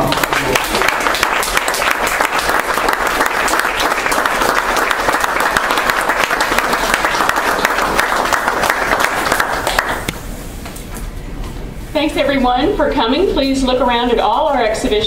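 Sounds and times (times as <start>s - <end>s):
audience applauding: 0.0s - 10.1s.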